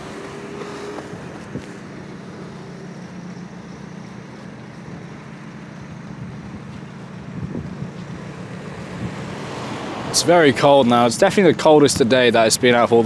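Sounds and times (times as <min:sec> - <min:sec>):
low street rumble: 0:00.0 - 0:13.0
wind on microphone: 0:07.3 - 0:08.0, 0:08.8 - 0:09.4.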